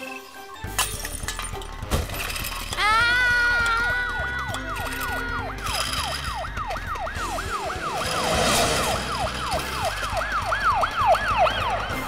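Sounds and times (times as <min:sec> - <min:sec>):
cartoon siren yelping: 0:02.8 - 0:09.4.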